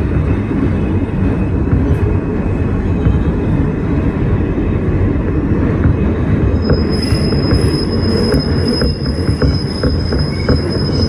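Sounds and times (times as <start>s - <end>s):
subway train rumbling in tunnel: 0.0s - 11.0s.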